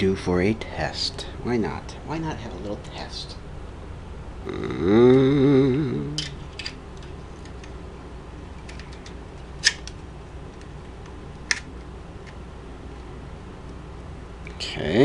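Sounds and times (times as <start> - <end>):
wordless vocal hum: 4.4 - 6.4.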